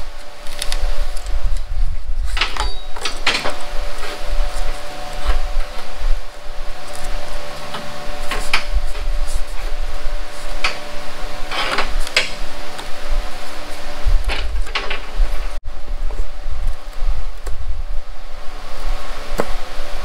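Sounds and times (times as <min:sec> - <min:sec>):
cardboard rustling and scraping: 0:00.0 - 0:15.6
shop fan humming: 0:00.0 - 0:20.0.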